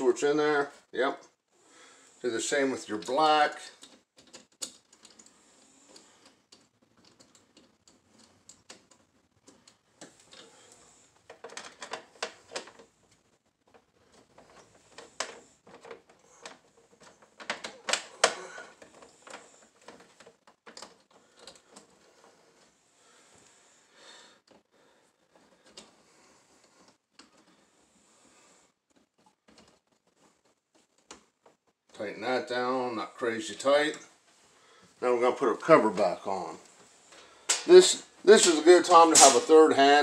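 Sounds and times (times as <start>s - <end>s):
tools clicking and scraping on metal: 38.4s - 39.6s.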